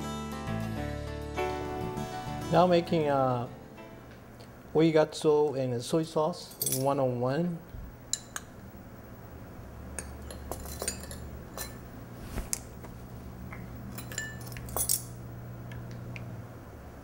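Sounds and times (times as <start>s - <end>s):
steady low hum: 1.4s - 17.0s
metal spoons clinking on glass: 10.0s - 11.8s, 13.9s - 15.2s.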